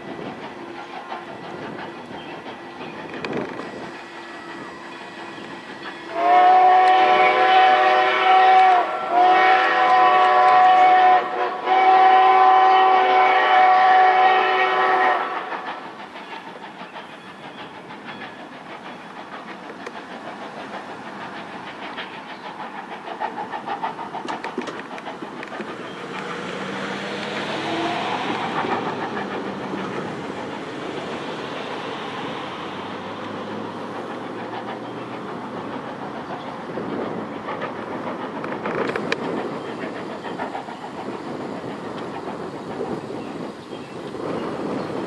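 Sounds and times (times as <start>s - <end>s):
train running noise: 0.0s - 45.0s
steam locomotive whistle blasts: 4.2s - 15.6s, 27.5s - 28.2s.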